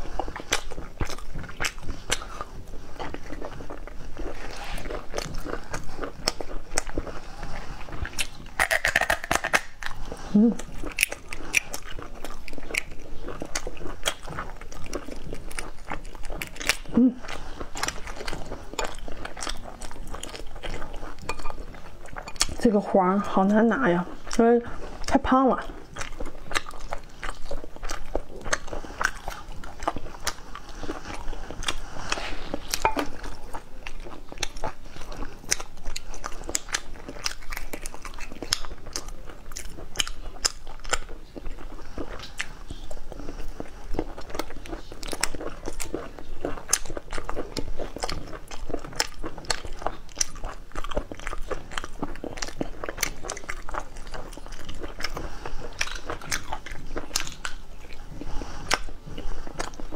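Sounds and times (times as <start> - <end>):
snail shells cracking: 8.5 - 9.9.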